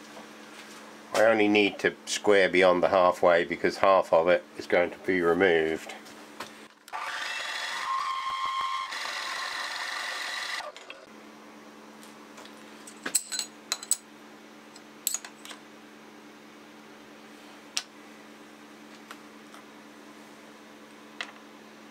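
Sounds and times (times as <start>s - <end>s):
milling machine whine: 6.9s - 11.0s.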